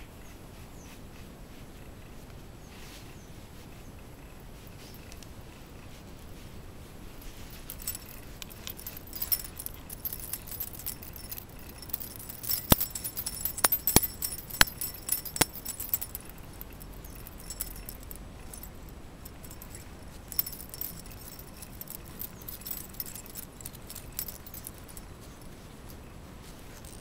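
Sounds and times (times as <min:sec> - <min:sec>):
dog collar tag jingling: 0:07.2 - 0:27.0.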